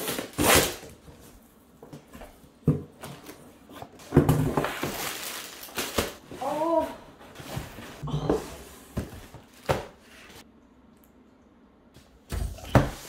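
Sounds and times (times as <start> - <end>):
packing tape ripping off cardboard: 0.0 - 1.0.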